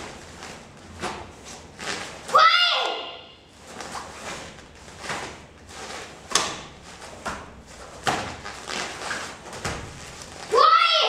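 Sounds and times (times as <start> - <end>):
bare feet landing on mat: 6.2 - 10.5.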